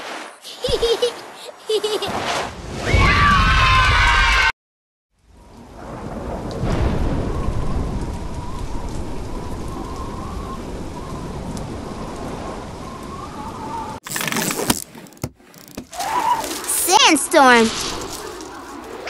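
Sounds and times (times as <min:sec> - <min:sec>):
heavy rain: 0:05.2 - 0:14.0
low rumble of thunder: 0:05.2 - 0:14.0.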